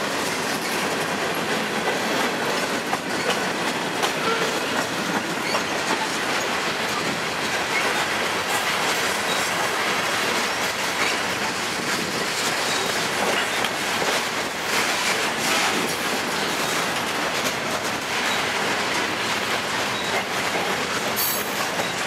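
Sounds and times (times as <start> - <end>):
freight train rolling past: 0.0 - 22.0
wheels clacking over rail joints: 0.0 - 22.0.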